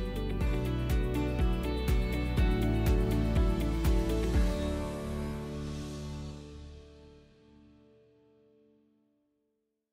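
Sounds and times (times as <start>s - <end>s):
background music with beat: 0.0s - 7.2s.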